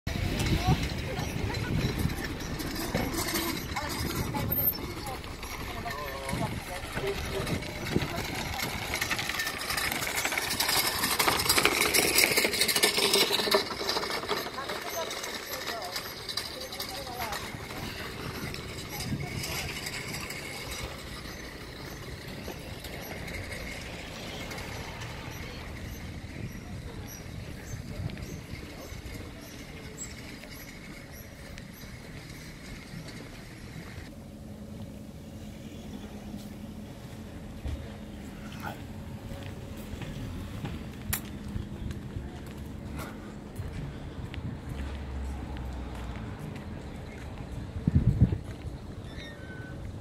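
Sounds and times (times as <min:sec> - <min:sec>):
wind buffeting microphone: 0:00.1 - 0:11.9, 0:16.8 - 0:31.2, 0:39.1 - 0:49.1
luggage trolley rattling over paving: 0:00.1 - 0:50.0.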